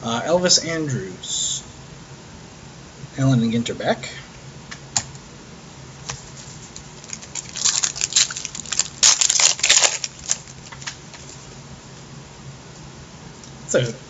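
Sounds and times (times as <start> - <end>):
wrapper crinkling: 6.2 - 11.6.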